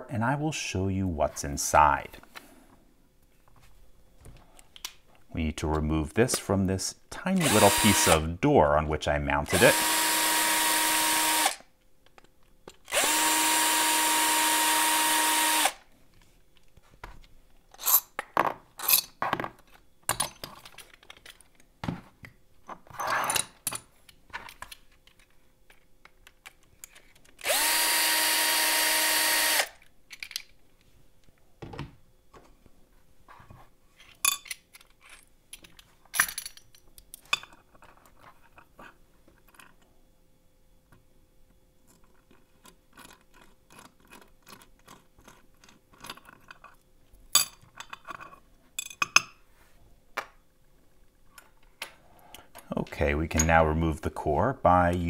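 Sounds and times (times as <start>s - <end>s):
drill motor whine: 7.4s - 8.2s, 9.6s - 11.6s, 12.9s - 15.8s, 27.4s - 29.7s
small metal parts clattering: 17.7s - 21.6s, 30.1s - 30.6s, 34.0s - 38.7s.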